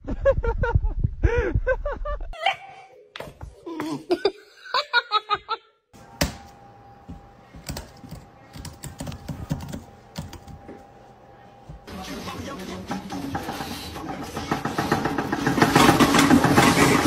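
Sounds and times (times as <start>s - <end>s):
computer keyboard clicking: 7.6s - 10.5s.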